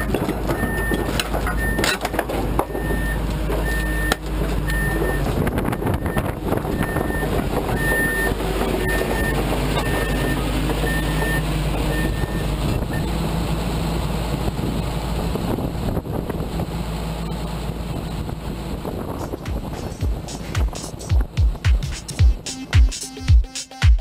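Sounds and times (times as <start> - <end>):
excavator diesel engine running: 0.0 - 23.2
machine alarm beeping: 0.6 - 2.0, 2.7 - 13.1.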